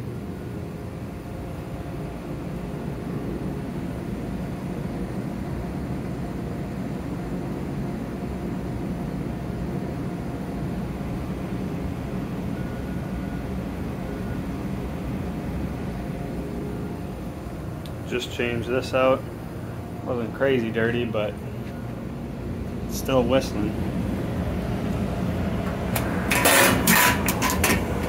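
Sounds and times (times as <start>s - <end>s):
furnace blower rushing air: 13.8s - 28.0s.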